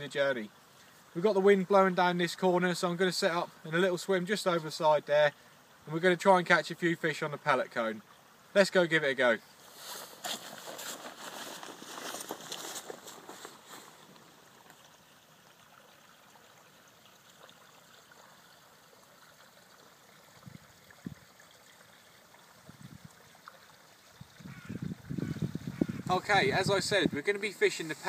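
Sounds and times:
faint outdoor hiss: 0.0s - 28.0s.

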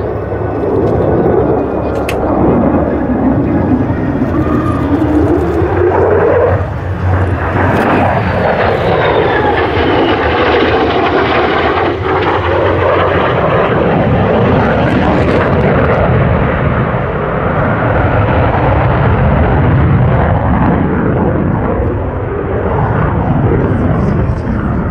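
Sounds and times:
jet roar flying past: 0.0s - 24.9s.

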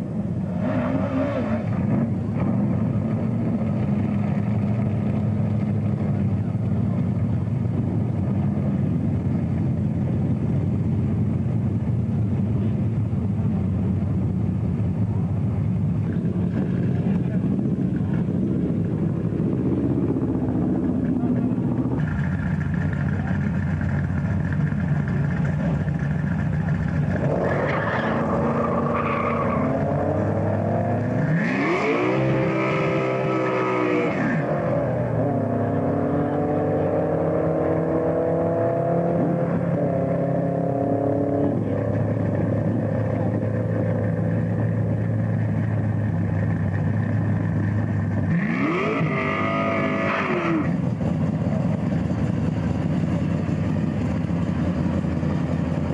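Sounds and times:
racing car engines revving: 0.0s - 55.9s
engine idle drone: 1.7s - 27.6s, 41.5s - 55.9s.

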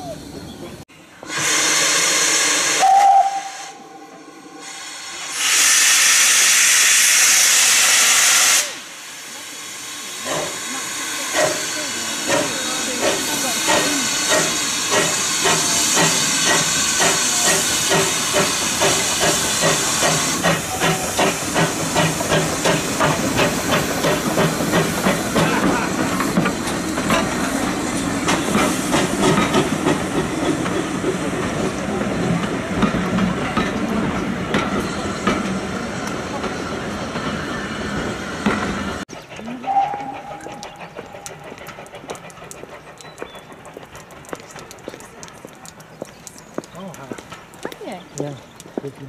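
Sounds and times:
steam hissing: 1.2s - 44.2s
steam locomotive whistle: 1.3s - 3.9s, 4.6s - 8.9s, 39.7s - 40.6s
steam locomotive exhaust beats: 4.7s - 46.4s.

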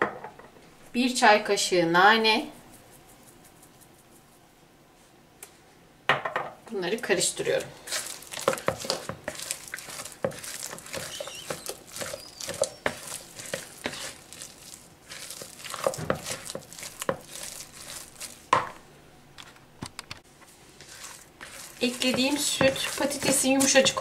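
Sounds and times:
spatula stirring mashed potato: 7.5s - 18.6s, 20.4s - 24.0s.

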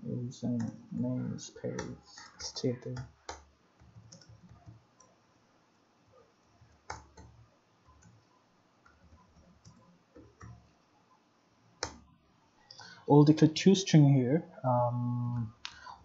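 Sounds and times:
computer keyboard typing: 0.5s - 5.2s, 6.6s - 10.7s.

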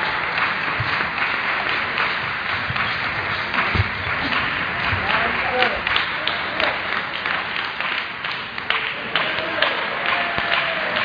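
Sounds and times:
crowd applauding: 0.0s - 11.0s
low thumps: 2.2s - 5.9s.

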